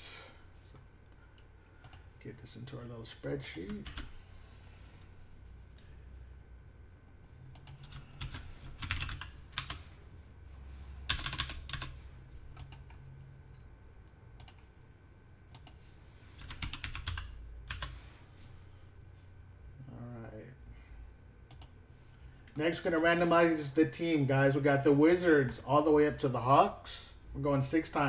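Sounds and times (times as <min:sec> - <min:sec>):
faint low hum: 0:00.0 - 0:28.0
computer keyboard typing: 0:03.5 - 0:04.1, 0:07.5 - 0:09.8, 0:11.1 - 0:13.0, 0:14.4 - 0:14.6, 0:15.5 - 0:15.8, 0:16.4 - 0:18.0, 0:21.5 - 0:21.8.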